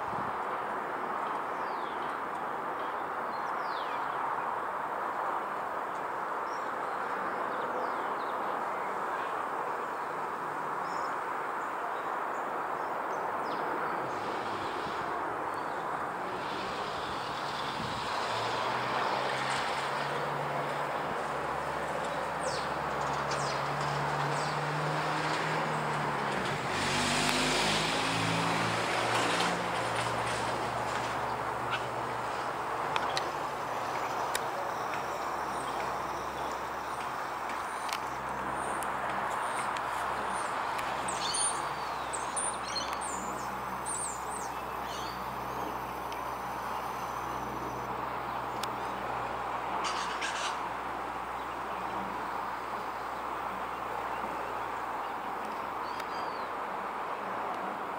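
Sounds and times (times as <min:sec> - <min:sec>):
birds chirping: 0:05.9 - 0:56.6
turboprop plane droning overhead: 0:13.5 - 0:54.6.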